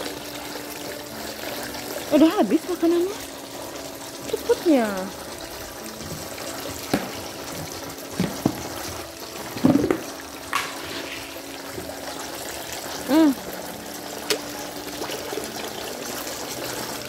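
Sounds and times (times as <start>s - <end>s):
water trickling: 0.0s - 17.0s
fish splashing and sucking: 10.4s - 13.0s.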